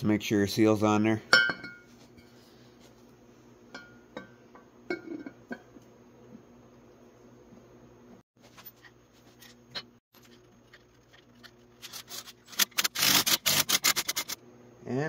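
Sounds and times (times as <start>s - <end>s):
loud sharp ratchet clicks: 12.5s - 14.4s.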